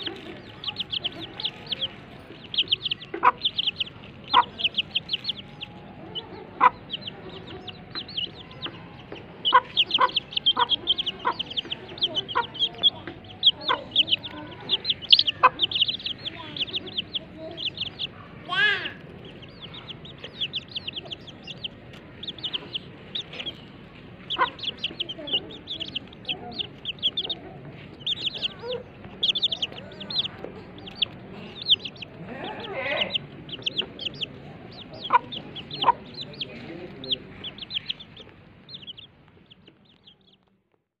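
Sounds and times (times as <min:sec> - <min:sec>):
hen clucking: 0:00.0 - 0:40.4
baby chicks peeping: 0:00.0 - 0:40.7.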